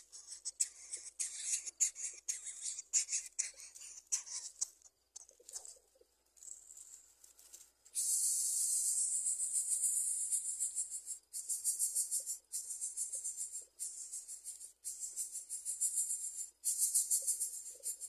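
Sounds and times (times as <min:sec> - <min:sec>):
twigs and dry grass rustling: 0:05.3 - 0:08.0
high-pitched buzzing hiss: 0:07.9 - 0:18.0.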